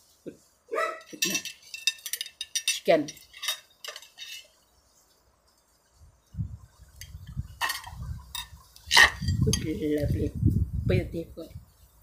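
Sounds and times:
chopsticks clinking on bowl: 1.1 - 4.4.

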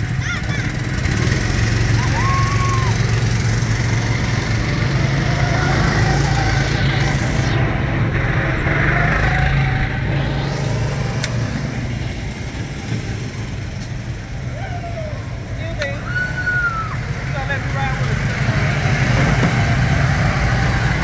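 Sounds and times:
go-kart engines droning: 0.0 - 21.0.

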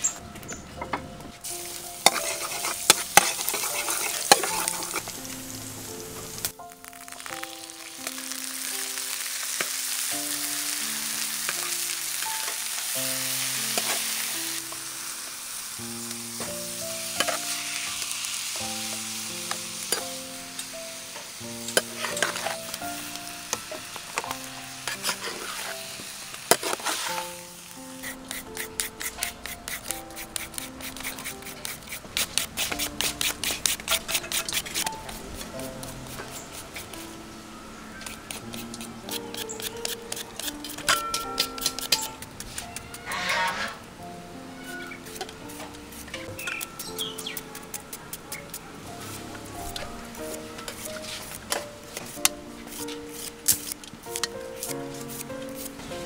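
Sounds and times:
background music with simple melody: 0.0 - 47.6, 48.9 - 56.0
food sizzling in a pan: 1.4 - 47.4, 49.0 - 56.0
metal spatula scraping a pan: 2.0 - 5.2, 17.2 - 17.9, 21.6 - 27.4, 28.0 - 37.0, 38.0 - 43.9, 49.0 - 55.9.

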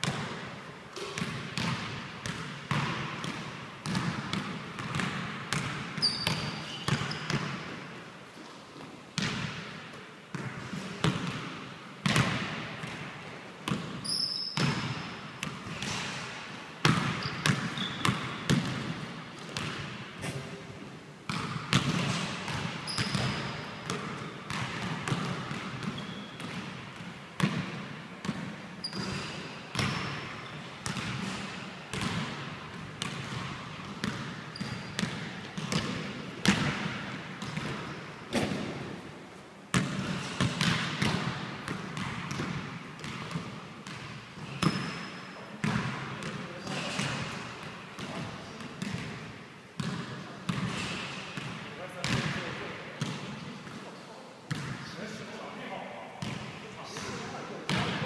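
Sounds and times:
basketball bouncing on wooden floor: 0.0 - 0.3, 1.0 - 7.7, 10.3 - 13.0, 13.7 - 16.0, 16.8 - 20.0, 21.3 - 38.8, 39.7 - 45.0, 45.6 - 46.4, 49.8 - 52.3
sneaker squeaks: 6.0 - 7.6, 13.7 - 16.2, 17.0 - 18.7, 21.3 - 24.6, 25.8 - 26.6, 28.8 - 32.0, 34.4 - 35.9, 44.4 - 45.6.

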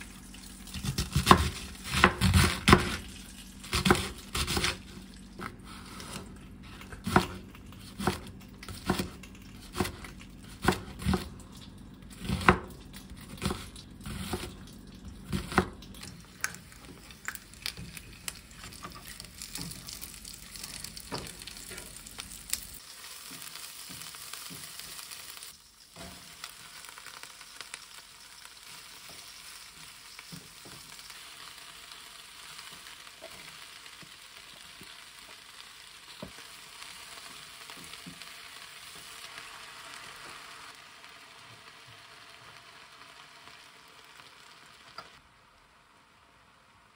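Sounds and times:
dumplings sizzling in oil: 0.0 - 46.9
knife chopping on plastic board: 7.0 - 11.3.

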